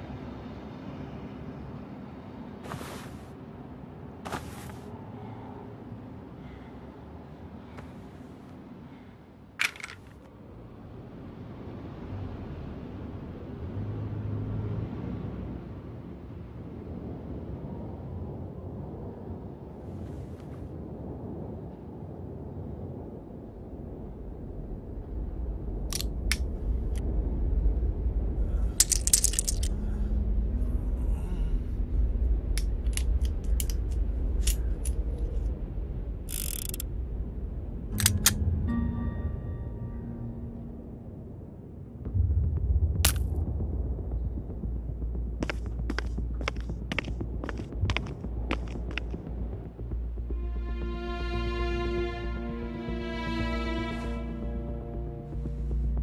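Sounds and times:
low rumbling drone: 23.6s - 56.0s
revolver mechanism clicks: 36.3s - 36.8s.

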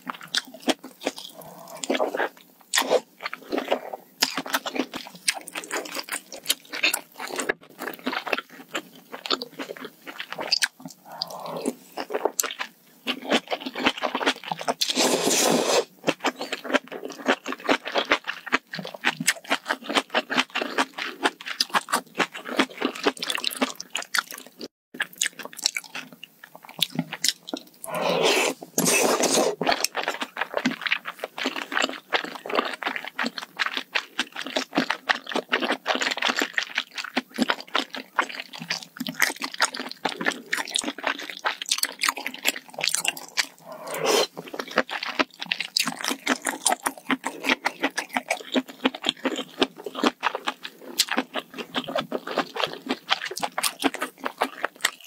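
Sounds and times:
wet chewing and crunchy bites: 0.0s - 15.0s, 15.8s - 55.0s
loud slurps: 14.8s - 15.9s, 27.8s - 29.8s, 43.1s - 44.6s.

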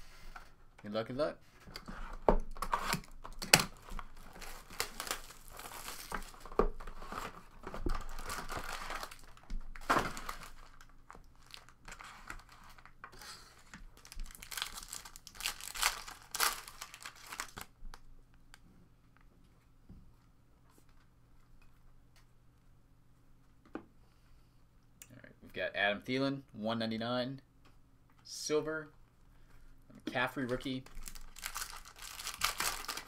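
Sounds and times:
foil packs ripping: 2.6s - 6.5s, 7.9s - 12.9s, 14.0s - 17.7s, 30.9s - 33.0s
foil crinkling: 2.6s - 17.7s, 30.9s - 33.0s.

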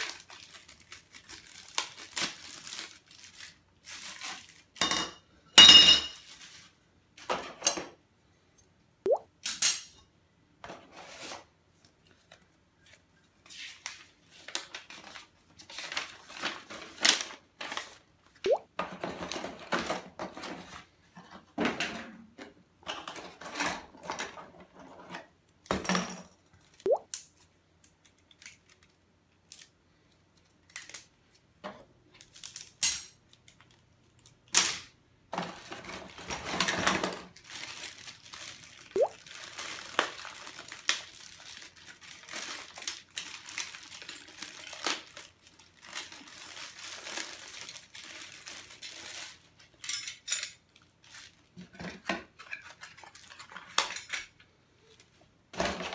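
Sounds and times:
packaging rustling: 0.0s - 4.8s, 37.3s - 49.8s.

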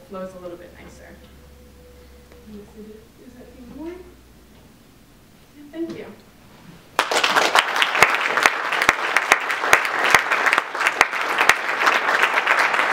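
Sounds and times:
audience applauding: 7.0s - 12.9s.

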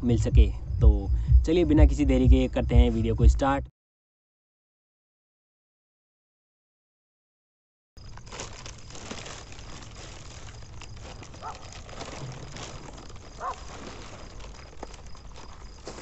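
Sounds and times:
low outdoor rumble: 0.0s - 3.7s, 8.0s - 16.0s
animal barking faintly: 11.4s - 11.8s, 13.4s - 13.7s.

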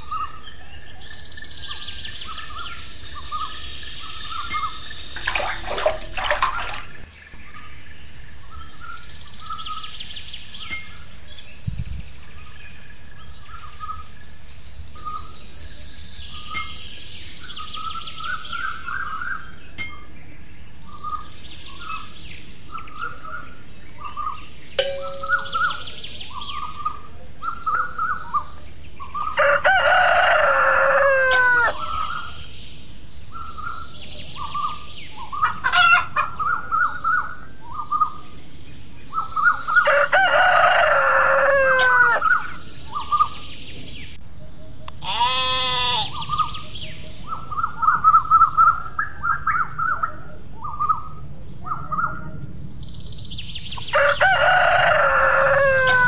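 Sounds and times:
rooster crowing: 29.4s - 31.8s, 39.8s - 42.3s, 53.9s - 56.0s
hens clucking: 35.4s - 36.4s.

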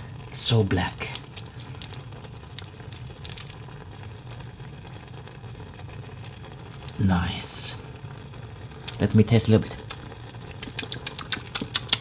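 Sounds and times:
noodles sizzling in saucepan: 0.0s - 12.0s
plastic sachet crinkling: 1.0s - 7.0s.

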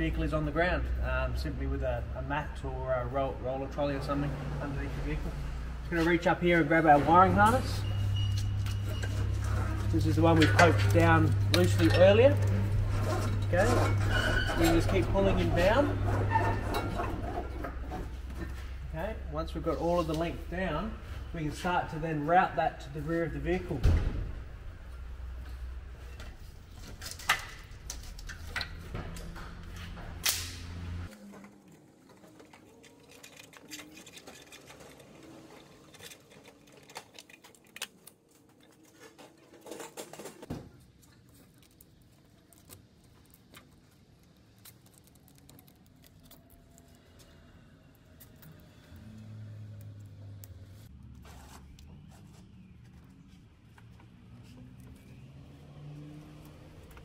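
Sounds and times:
wiring harness clicking and rattling: 31.2s - 47.3s.

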